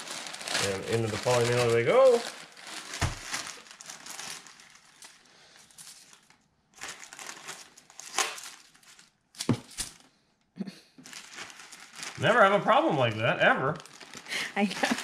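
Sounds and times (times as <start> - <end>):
plastic mailer and bubble wrap crinkling: 0.0 - 10.1, 11.0 - 15.0.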